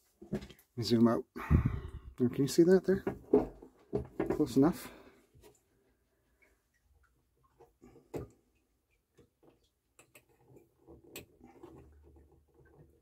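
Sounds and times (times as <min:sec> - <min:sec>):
small clicks and taps on metal: 0:09.0 - 0:13.0.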